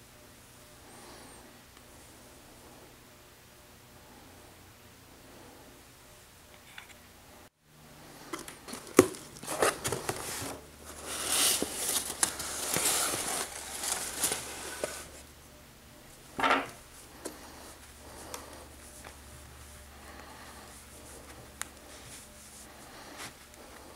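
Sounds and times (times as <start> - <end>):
paper and cloth rustling: 8.6 - 15.2.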